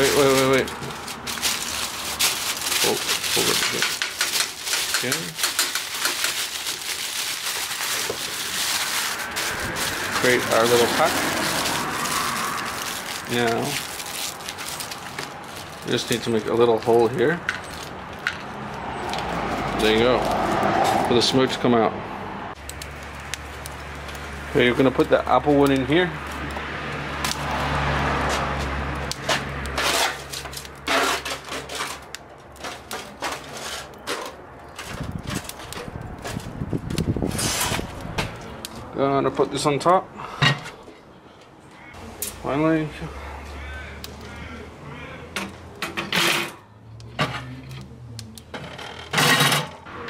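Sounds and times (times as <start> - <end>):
charcoal crackling and popping: 0.0 - 21.6, 22.5 - 40.0, 42.0 - 44.7, 45.3 - 49.6
steel grate clattering on metal rack: 2.2 - 6.6, 49.1 - 49.8.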